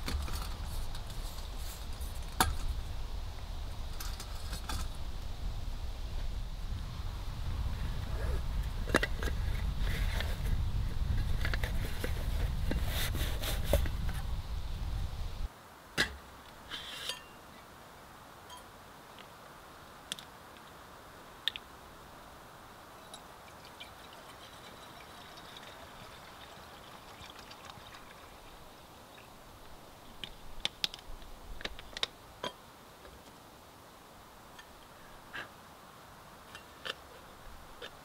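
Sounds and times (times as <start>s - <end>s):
water pouring into pot: 23.5s - 28.7s.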